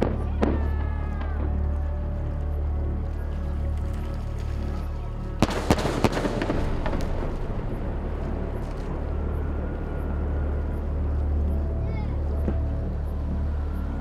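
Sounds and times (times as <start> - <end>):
firework bangs: 0.0 - 1.6, 5.4 - 9.6
firework crackling: 0.0 - 14.0
low droning background music: 0.0 - 14.0.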